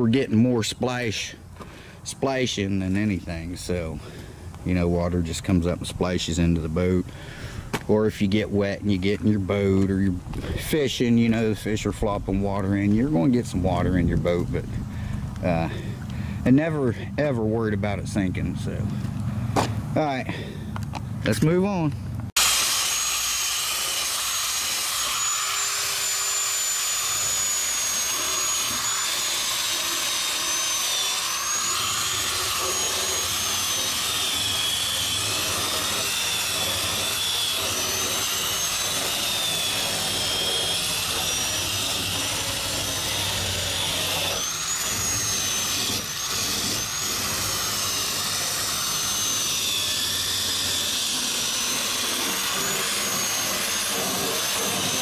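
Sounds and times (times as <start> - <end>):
disc grinder whining on metal: 22.4 - 55.0.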